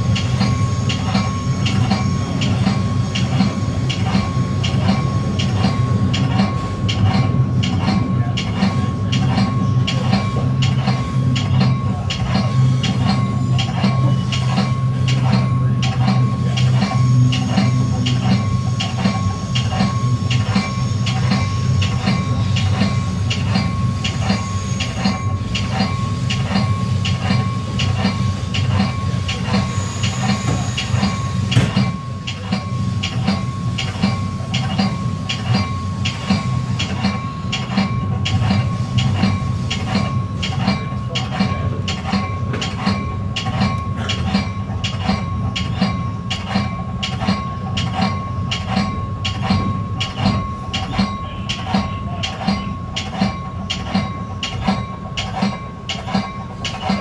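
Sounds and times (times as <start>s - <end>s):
train rumbling: 0.0s - 57.0s
train wheel clicks: 0.0s - 57.0s.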